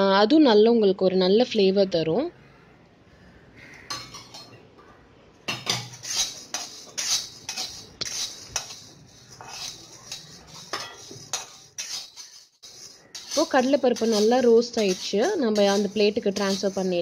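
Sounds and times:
spatula scraping pan: 3.6s - 4.6s, 5.5s - 17.0s
lentils rattling in pan: 5.7s - 17.0s.

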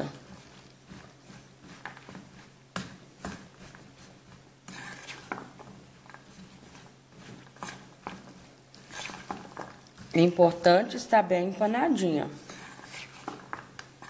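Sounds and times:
metal spoon scraping metal bowl: 4.7s - 5.4s, 8.8s - 9.7s, 12.4s - 13.5s.

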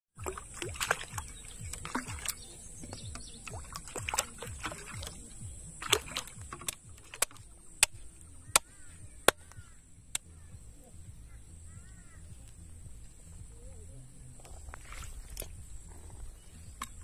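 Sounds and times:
water lapping and sloshing: 0.2s - 9.1s.

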